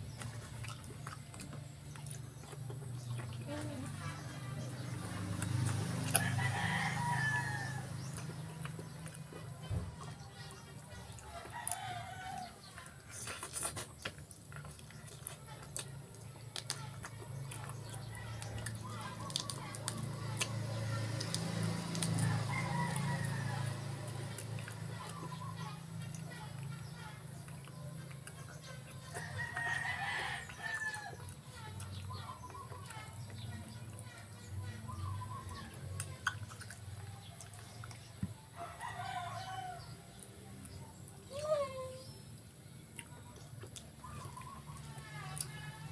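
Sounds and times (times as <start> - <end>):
hands tearing and chewing food: 0.0 - 41.4, 42.4 - 45.9
rooster crowing: 6.0 - 8.0, 22.2 - 23.9, 29.1 - 31.2, 38.6 - 40.0.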